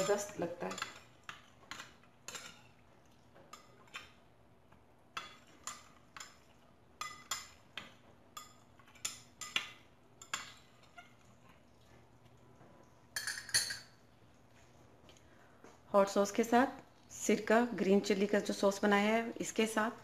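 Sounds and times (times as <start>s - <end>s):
metal spoon clinking against glass: 13.2s - 13.9s.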